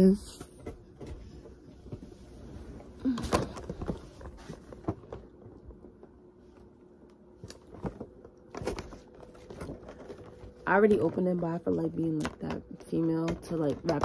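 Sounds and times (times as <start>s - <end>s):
plastic box handling knocks and rustles: 3.1s - 6.1s, 7.5s - 14.0s.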